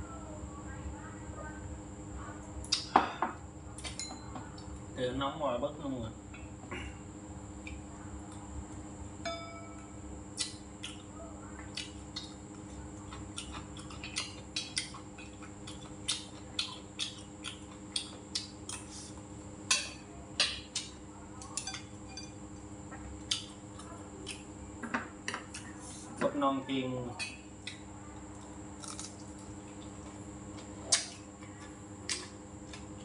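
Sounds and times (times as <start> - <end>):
steady low hum: 0.0 - 33.0
chewing: 10.4 - 19.3, 22.9 - 24.5, 27.6 - 33.0.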